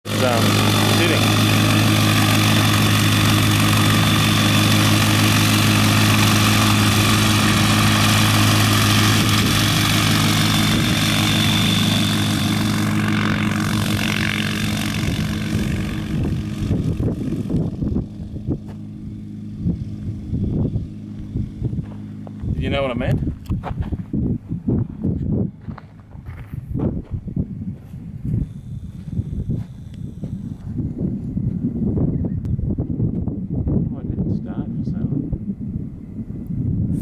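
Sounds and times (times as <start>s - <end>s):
aircraft engine and propeller running: 0.0s - 37.0s
gusty low rumbles: 0.1s - 37.0s.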